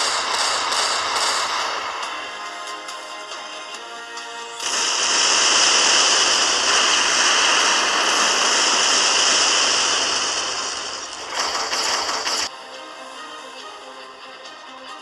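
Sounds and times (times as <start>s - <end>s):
explosion rushing noise: 4.6s - 12.5s.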